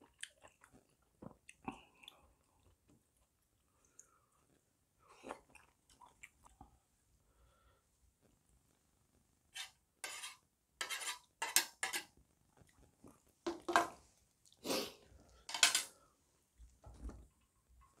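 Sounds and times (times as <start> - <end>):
chopsticks scraping and clinking: 9.6 - 12.1, 15.4 - 16.0.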